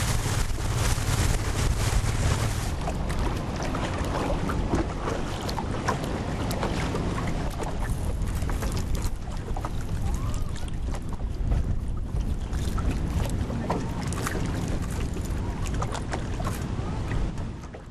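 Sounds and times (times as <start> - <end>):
motorboat engine rumble: 0.0 - 17.9
water lapping against hull: 0.0 - 17.9.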